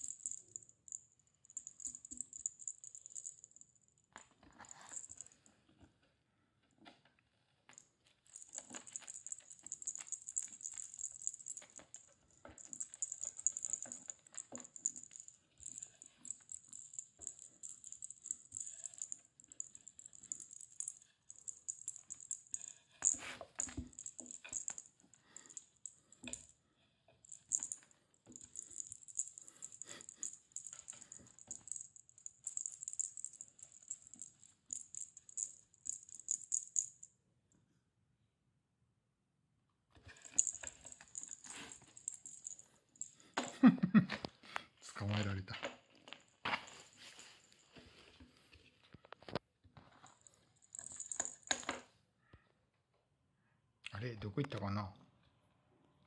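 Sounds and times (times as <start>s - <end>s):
jingle ball rattling: 0.0s - 5.5s, 7.8s - 26.6s, 27.2s - 37.1s, 40.1s - 43.7s, 50.0s - 51.8s.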